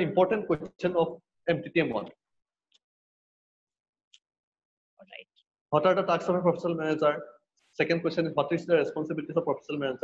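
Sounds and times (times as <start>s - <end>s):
man speaking: 0.0s - 2.2s, 5.8s - 10.0s.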